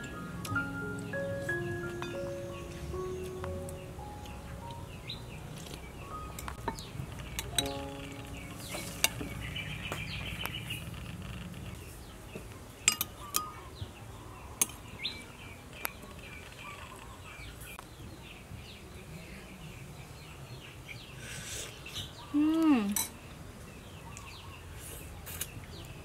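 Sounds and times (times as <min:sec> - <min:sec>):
metal spoon clinking on bowls: 0:06.3 - 0:09.3, 0:12.9 - 0:13.6.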